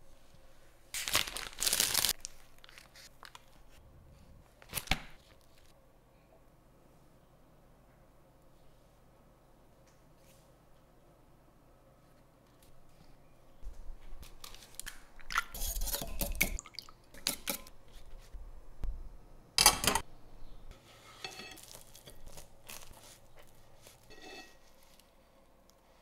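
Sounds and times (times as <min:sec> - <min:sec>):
fork scraping a ceramic plate: 0:20.9 - 0:22.1, 0:23.9 - 0:24.7
pastry crackling and crunching: 0:21.4 - 0:25.2.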